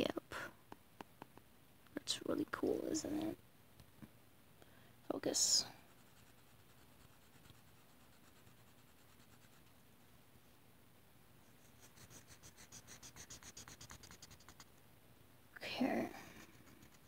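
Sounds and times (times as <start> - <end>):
marker scribbling on paper: 11.6 - 14.7, 16.3 - 17.0.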